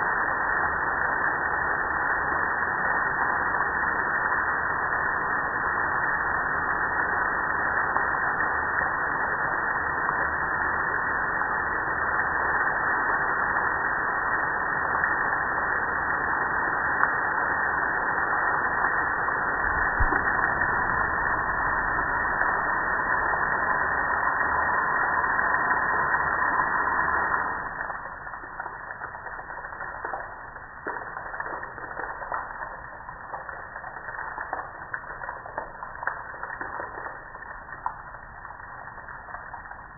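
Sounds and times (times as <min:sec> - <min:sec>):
water dripping off grill: 0:18.7 - 0:39.9.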